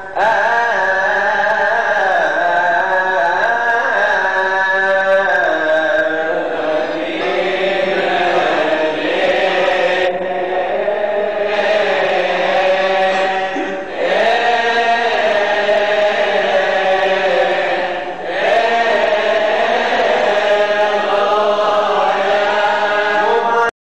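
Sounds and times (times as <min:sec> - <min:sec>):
man chanting: 0:00.0 - 0:14.0, 0:19.6 - 0:23.7.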